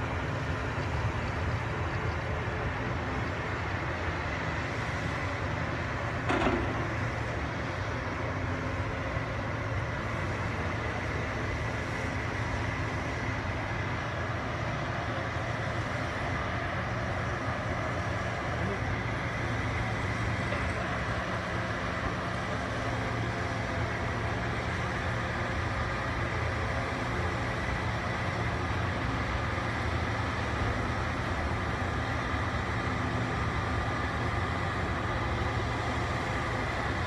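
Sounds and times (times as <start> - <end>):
bulldozer diesel engines running: 0.0 - 37.0
short knock: 6.3 - 6.9.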